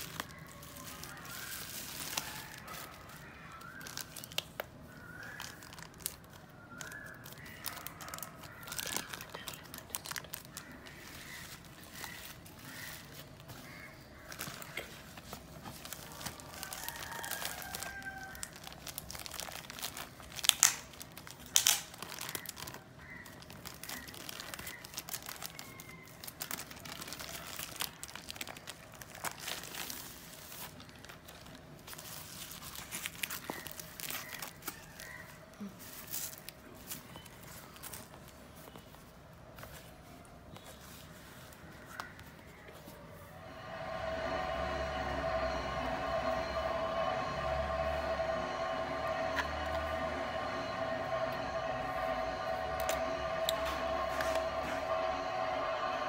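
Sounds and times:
sharp plastic crackles: 0.0 - 35.1
plastic packaging crinkling: 0.0 - 38.9.

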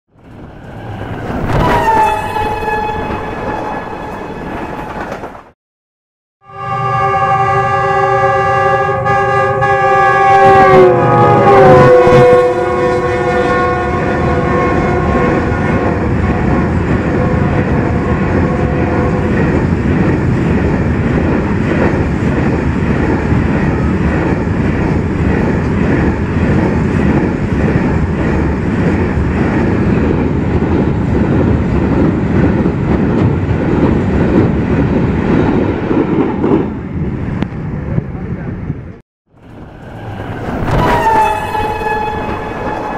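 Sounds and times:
locomotive horn: 0.7 - 5.0, 6.4 - 19.3, 39.8 - 42.9.

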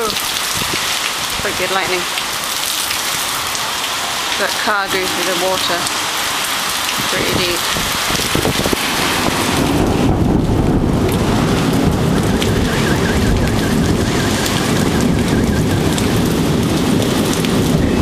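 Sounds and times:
heavy rain pouring: 0.0 - 18.0
low rumble of thunder: 4.8 - 18.0.

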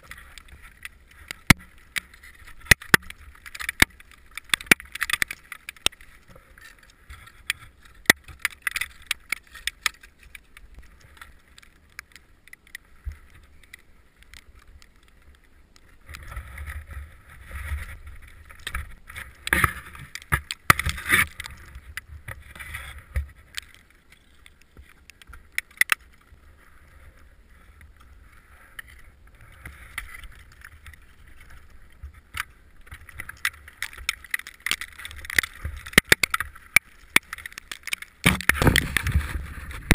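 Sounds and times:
ice axes striking ice: 33.8 - 39.9.

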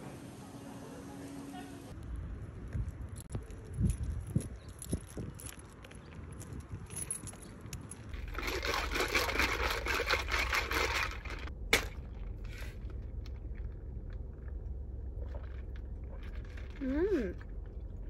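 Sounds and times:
low steady hum: 7.0 - 18.0.

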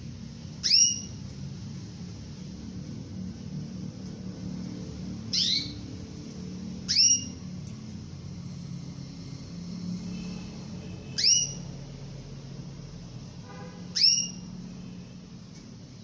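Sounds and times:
low steady hum: 0.0 - 16.0
canary call notes: 0.6 - 1.2, 5.3 - 5.8, 6.8 - 7.4, 11.1 - 11.7, 13.8 - 14.6.

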